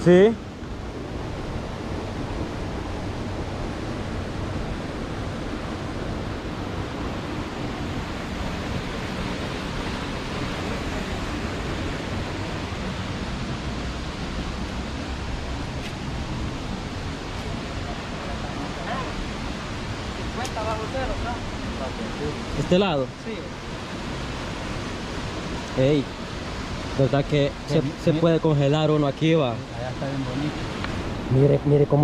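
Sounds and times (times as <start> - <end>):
small waterfall rushing: 0.0 - 32.0.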